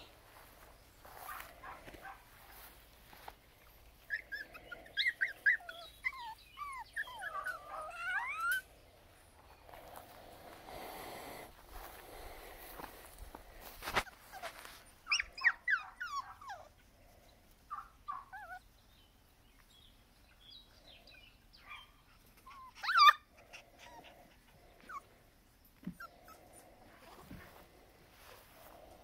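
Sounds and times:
puppies whining and yipping: 3.6 - 8.7, 14.0 - 17.0, 17.7 - 18.8, 21.6 - 27.4.

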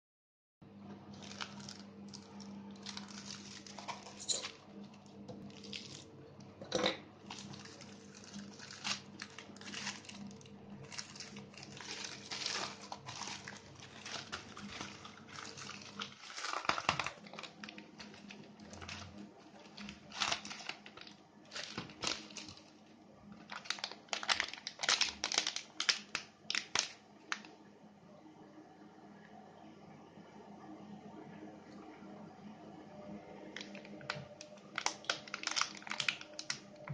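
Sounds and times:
plastic mailing bag crinkling: 1.1 - 6.1, 7.2 - 27.5, 33.6 - 36.9
plastic bag crinkling: 1.1 - 6.2, 7.2 - 27.5, 33.6 - 36.9.

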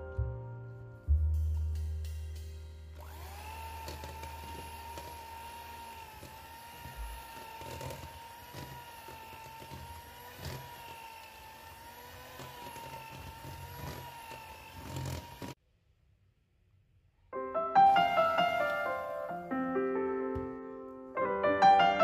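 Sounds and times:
hand mixer motor whining: 3.0 - 15.6.

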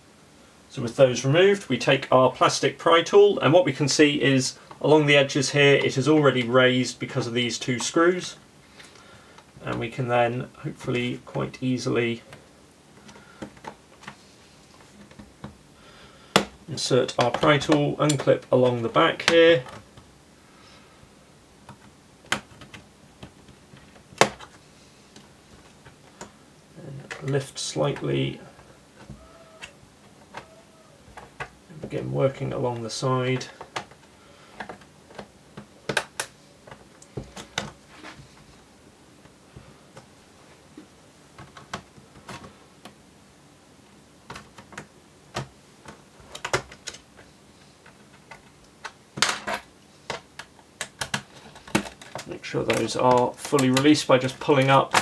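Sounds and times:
plastic clips clicking: 47.8 - 55.0.

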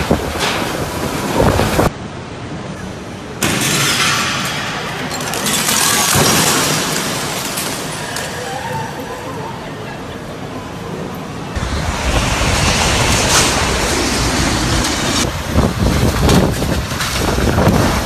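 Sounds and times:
wind gusting against microphone: 0.0 - 2.7, 11.2 - 18.0.

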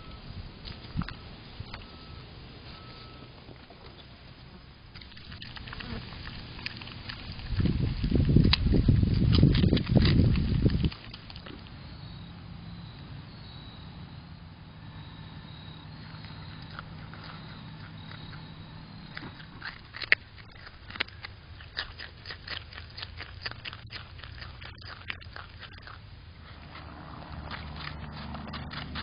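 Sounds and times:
faint low hum: 0.0 - 29.0
animal crunching vegetables: 2.6 - 12.1, 15.4 - 29.0.

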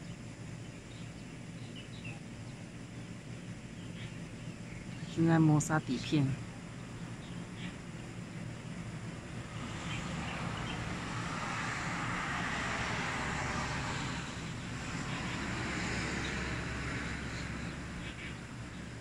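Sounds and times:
vehicles passing on road: 8.7 - 19.0.

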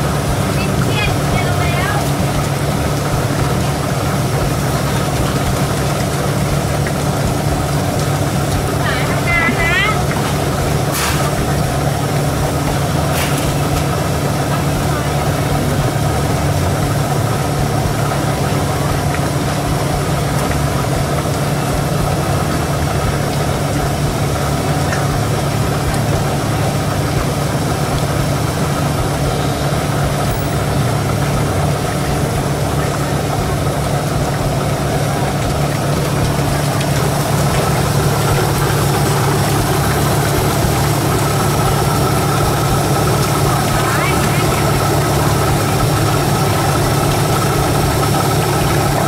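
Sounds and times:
faint voices: 0.0 - 49.0
low mechanical hum: 0.0 - 49.0.

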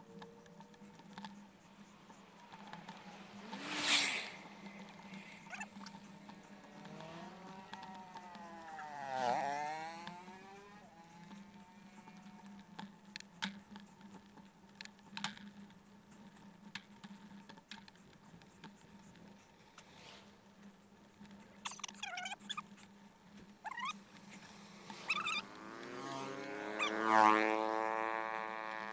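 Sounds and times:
vehicle passing close by: 2.6 - 5.7, 6.5 - 12.6, 24.4 - 28.9.

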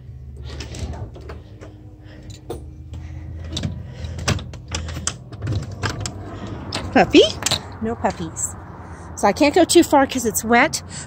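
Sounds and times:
latch clicks and knocks: 3.4 - 7.8.

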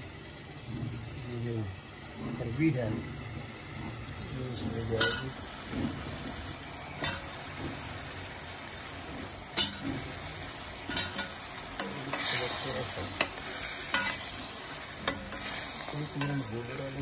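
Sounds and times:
frying sizzle: 0.0 - 17.0
metal spoon clinking on pan: 5.0 - 5.4, 7.0 - 7.4, 9.5 - 10.1, 10.8 - 14.4, 15.0 - 16.6.

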